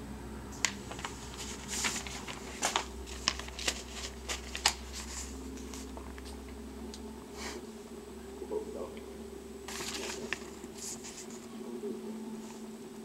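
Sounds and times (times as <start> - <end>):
low room hum: 0.0 - 13.0
paper rustling: 0.6 - 6.0, 9.7 - 11.5.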